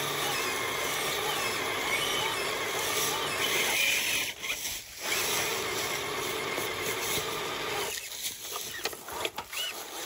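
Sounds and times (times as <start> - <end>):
electric motor and gearbox whirring: 0.0 - 10.0
tyres scraping on stone: 4.2 - 10.0.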